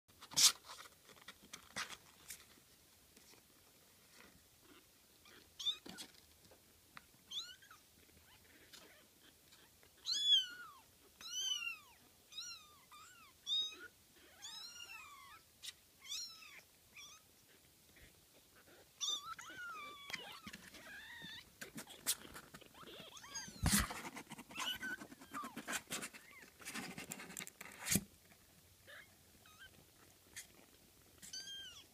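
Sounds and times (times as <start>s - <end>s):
kittens mewing: 8.3s - 26.6s.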